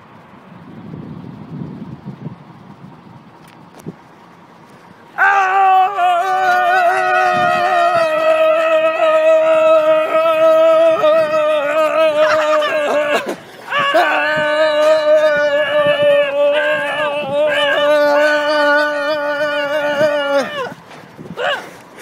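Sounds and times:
person yelling: 5.2s - 20.8s, 21.4s - 21.8s.

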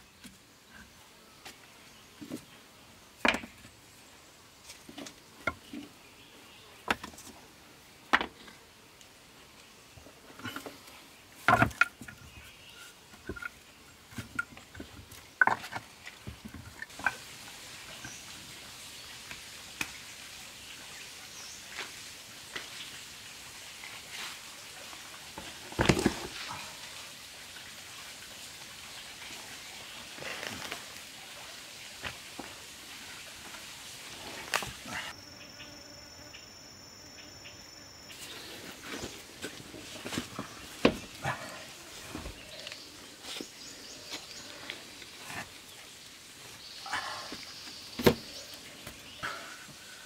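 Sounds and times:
steady background hiss: 0.0s - 50.0s
stones knocking and scraping: 11.4s - 12.4s, 13.2s - 17.2s, 25.4s - 26.4s.

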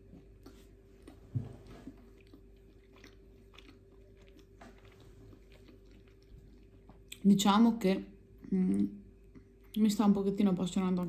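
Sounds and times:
person chewing: 0.1s - 7.3s.

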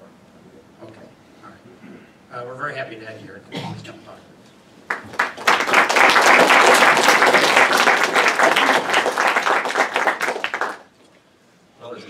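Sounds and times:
audience applauding: 4.9s - 10.9s.

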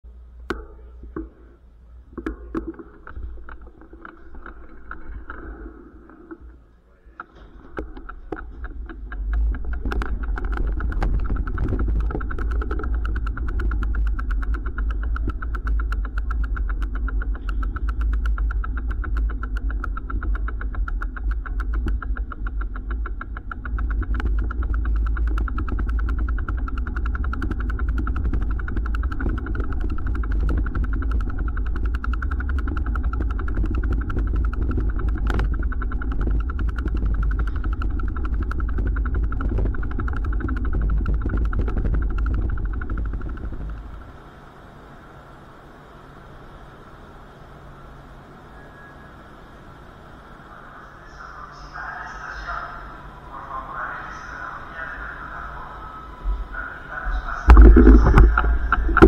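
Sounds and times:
low rumble: 0.0s - 59.0s
bicycle freewheel ticking: 7.8s - 44.3s.

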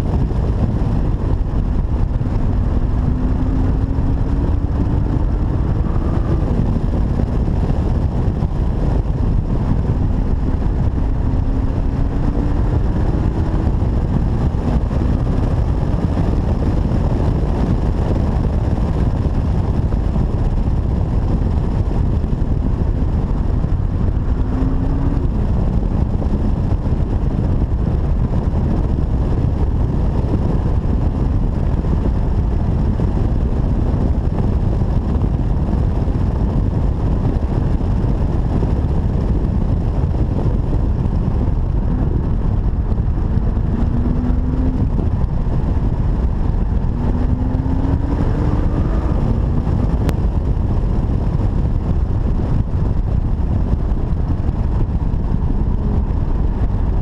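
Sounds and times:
car engine revving: 0.0s - 19.2s, 19.8s - 27.9s, 39.1s - 51.4s
road and wind noise: 0.0s - 57.0s.

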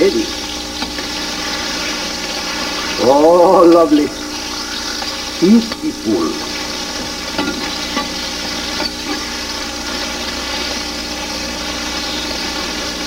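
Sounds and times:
fish fillets sizzling in a pan: 0.0s - 13.0s.

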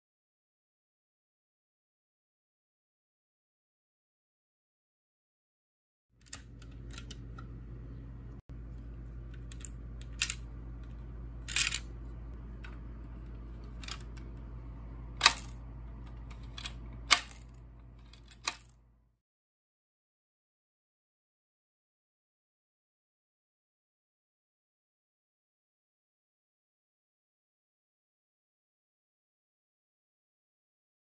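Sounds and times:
low electrical hum: 6.2s - 19.2s.

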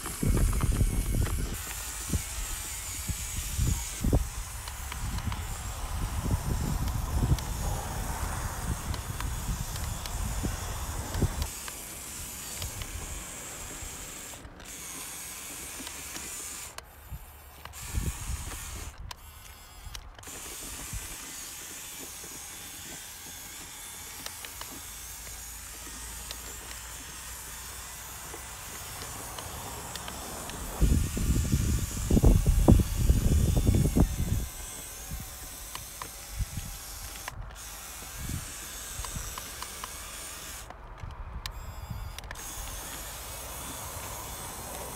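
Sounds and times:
electric motor and gearbox whirring: 0.0s - 44.9s.

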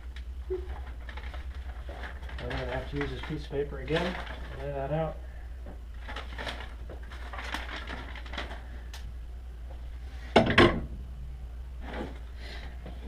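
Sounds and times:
steady low hum: 0.0s - 13.0s
paper and tools rustling: 0.5s - 8.9s, 11.8s - 12.8s.

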